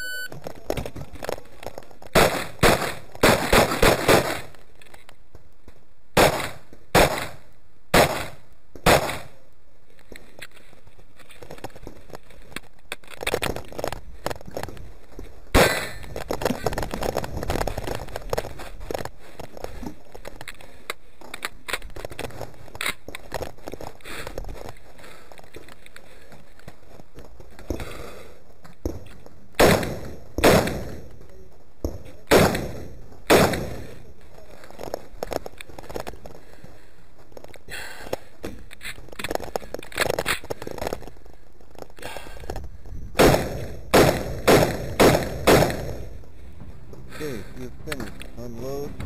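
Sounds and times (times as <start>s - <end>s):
pistol shots: 2.2s - 4.5s, 6.2s - 9.4s, 29.6s - 31.0s, 32.3s - 34.0s, 43.2s - 46.1s
rifle gear clicks and rattles: 10.0s - 15.4s, 16.0s - 27.9s, 34.2s - 43.1s.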